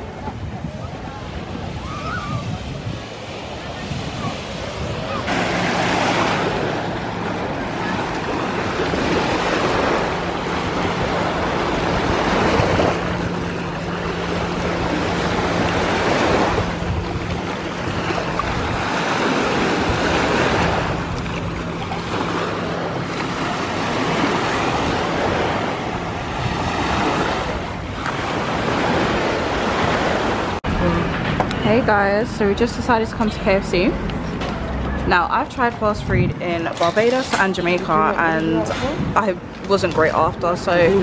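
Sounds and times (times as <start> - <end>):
surf washing onto beach: 0.0 - 31.6
wind buffeting microphone: 0.0 - 41.0.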